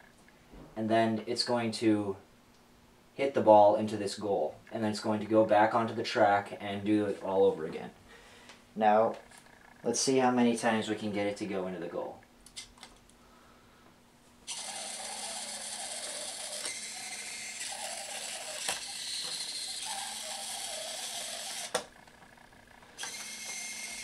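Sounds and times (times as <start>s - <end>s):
servo motors whirring: 14.5s - 21.9s, 23.0s - 24.0s.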